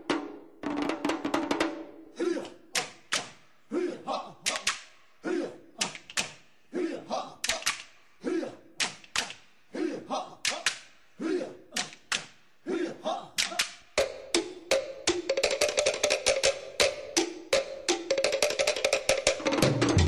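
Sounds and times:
wood block clicks: 0:04.5 - 0:04.9, 0:07.4 - 0:08.0, 0:13.4 - 0:19.4.

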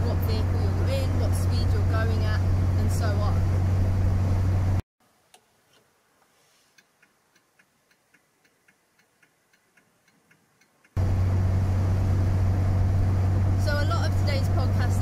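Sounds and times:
car engine and road drone: 0:00.0 - 0:04.8, 0:11.0 - 0:15.0.

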